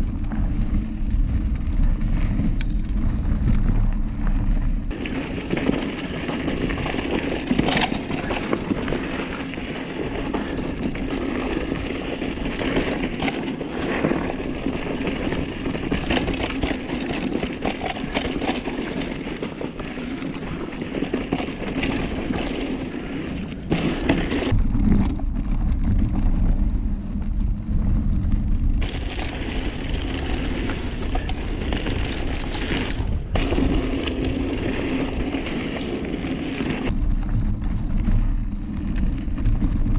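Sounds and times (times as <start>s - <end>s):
muffled deep rumble: 0.0s - 5.0s, 24.4s - 35.3s, 36.8s - 39.9s
bike rattling and knocking: 0.0s - 39.9s
bike tyres on dirt: 0.0s - 39.9s.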